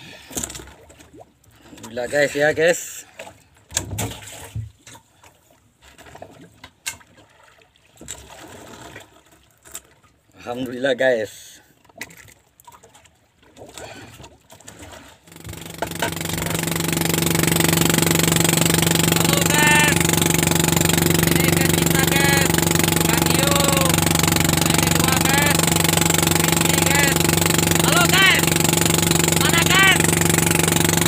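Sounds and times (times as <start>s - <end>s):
boat motor running: 15.2s - 31.0s
short voices: 19.1s - 20.2s, 21.2s - 28.6s, 29.3s - 30.2s.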